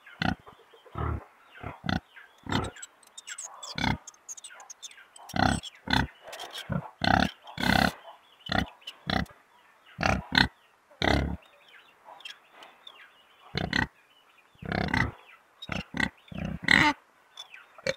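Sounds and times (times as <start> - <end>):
pigs grunting: 0.2 - 2.8, 3.7 - 4.1, 5.3 - 9.3, 10.0 - 11.4, 13.5 - 13.9, 14.6 - 17.0.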